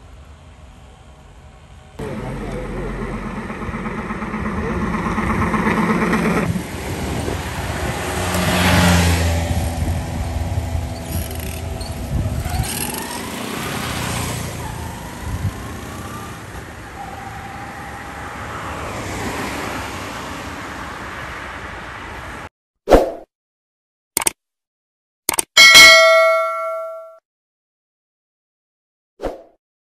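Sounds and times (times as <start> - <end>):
vehicle passing with tyre noise: 0.1 - 22.5
motorcycle accelerating away: 2.0 - 16.5.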